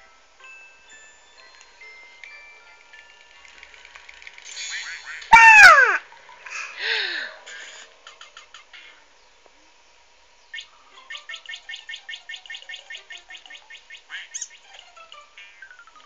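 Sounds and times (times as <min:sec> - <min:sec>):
cartoon bird chirping: 0:04.7 - 0:06.0, 0:10.5 - 0:16.0.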